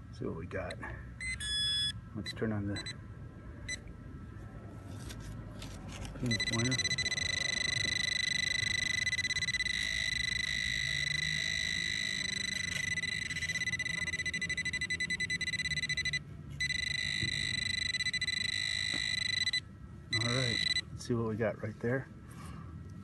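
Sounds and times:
metal detector pulsing buzz: 0:06.3 - 0:20.8.

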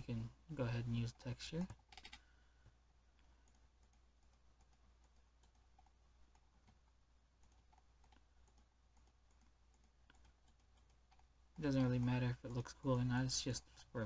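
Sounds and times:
faint low hum: 0:00.0 - 0:14.0
computer mouse clicking: 0:01.6 - 0:11.3.

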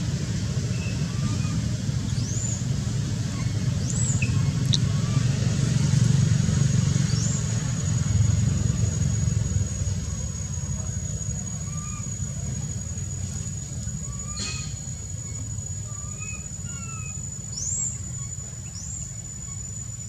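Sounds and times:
low rumbling: 0:00.0 - 0:16.7
faint high chirps: 0:03.4 - 0:05.4.

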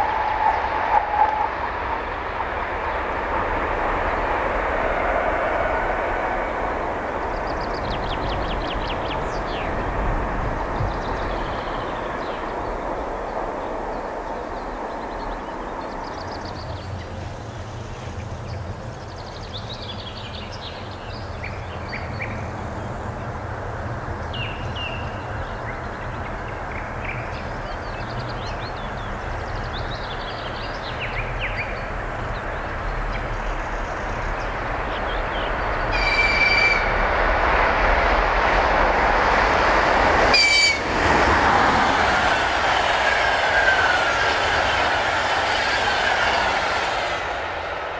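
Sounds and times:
train wheels rumbling on rails: 0:00.0 - 0:47.9
high train horn blasts: 0:35.9 - 0:37.0, 0:40.3 - 0:41.2.

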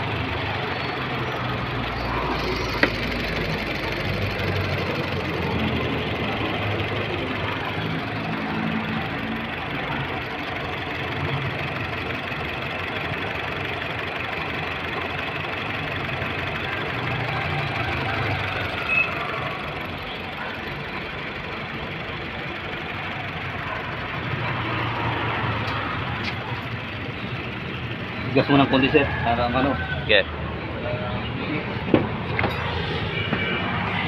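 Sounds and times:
car engine idling: 0:00.0 - 0:33.8.

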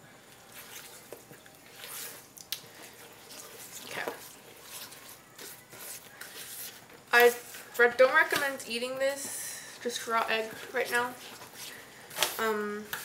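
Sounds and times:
spatula stirring wet batter: 0:00.2 - 0:13.0.

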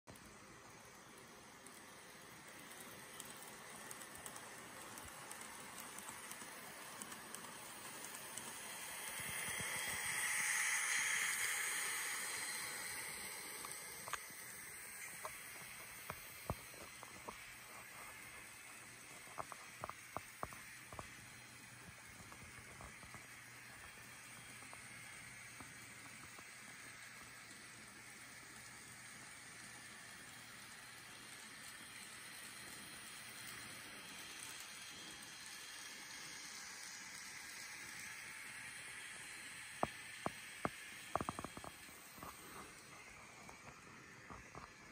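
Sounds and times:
faint clicks: 0:00.1 - 0:10.3
model train hissing on track: 0:00.1 - 0:44.9.

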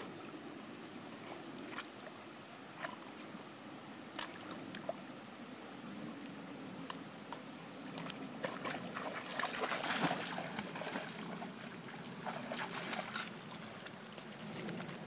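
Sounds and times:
trickle of flowing water: 0:04.2 - 0:15.0
dog splashing through water: 0:07.9 - 0:15.0.

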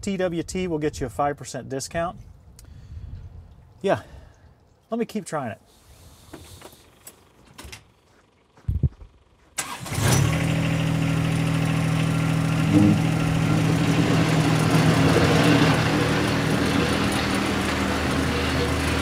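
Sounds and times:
tractor diesel engine running: 0:08.1 - 0:19.0.

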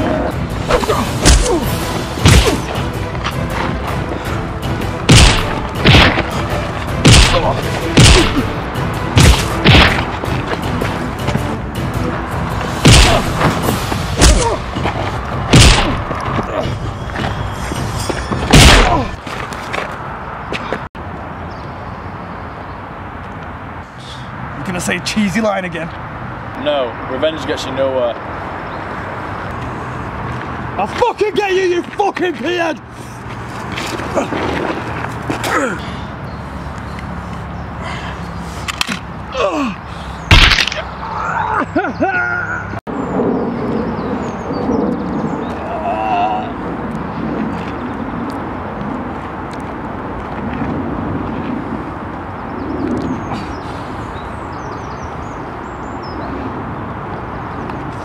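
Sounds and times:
background music: 0:00.0 - 0:19.0
heavy punch thuds: 0:01.2 - 0:01.6, 0:02.2 - 0:02.7, 0:05.0 - 0:06.3, 0:07.0 - 0:08.5, 0:12.8 - 0:13.6, 0:15.5 - 0:16.1, 0:18.5 - 0:19.2
man groaning: 0:39.3 - 0:39.8, 0:45.6 - 0:46.6.

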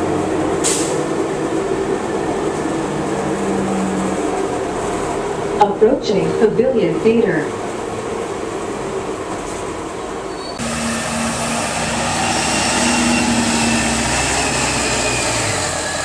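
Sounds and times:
bus engine droning and whining: 0:00.0 - 0:16.0.

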